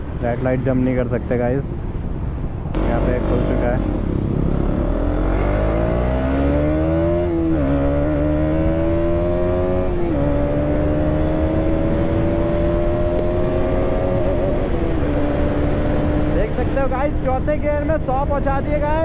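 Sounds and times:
motorcycle engine accelerating: 2.8s - 16.9s.

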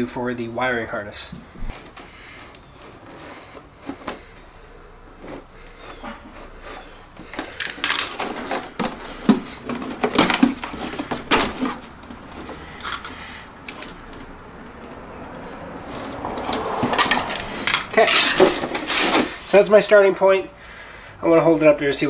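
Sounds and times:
plastic cracking: 7.0s - 14.0s
knife scoring plastic: 16.1s - 19.5s.

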